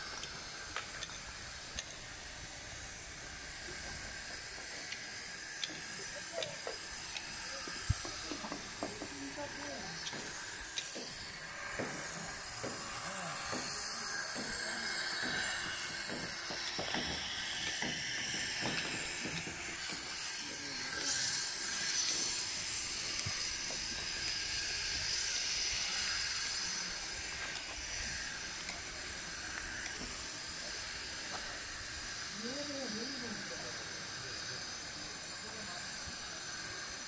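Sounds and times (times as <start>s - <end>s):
outdoor background hiss: 0.0s - 37.0s.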